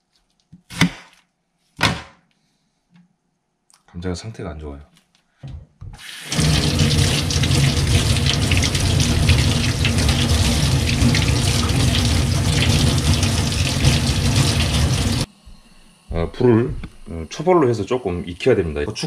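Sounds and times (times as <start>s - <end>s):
tap water splashing into sink: 6.0s - 15.3s.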